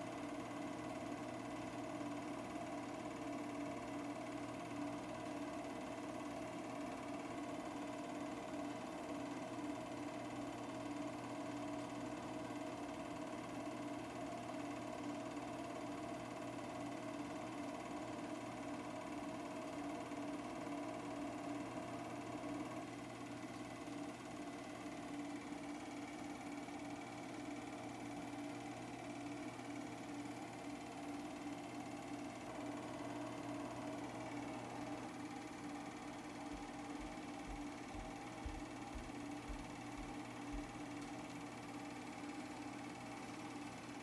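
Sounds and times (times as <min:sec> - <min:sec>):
film projector hum and whir: 0:00.0 - 0:44.0.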